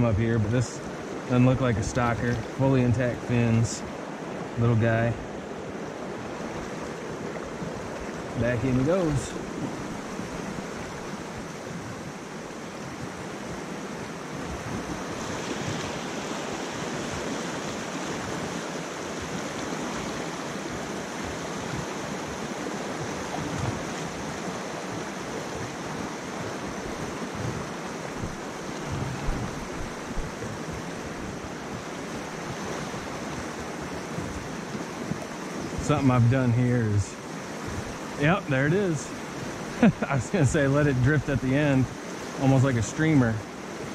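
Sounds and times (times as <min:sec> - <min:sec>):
stream rushing over rocks: 0:00.0 - 0:43.9
short low bumps: 0:28.2 - 0:30.5.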